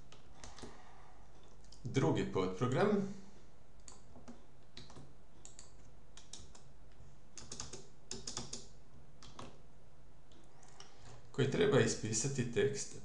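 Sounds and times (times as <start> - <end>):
keyboard keystrokes: 3.8 - 6.7, 7.4 - 9.6.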